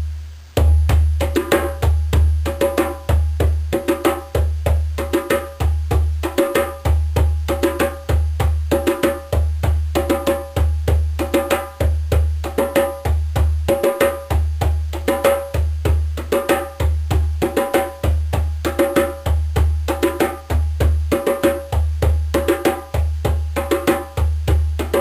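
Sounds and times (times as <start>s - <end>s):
hand drum rhythm: 0.0s - 25.0s.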